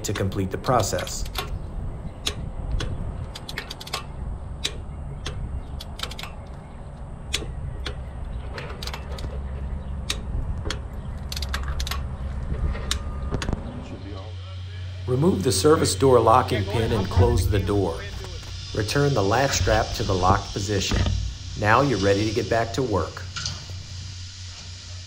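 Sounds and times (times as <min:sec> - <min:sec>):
metallic clicks of torque wrench: 0:00.0 - 0:01.6, 0:02.2 - 0:12.2
low steady hum: 0:00.0 - 0:25.0.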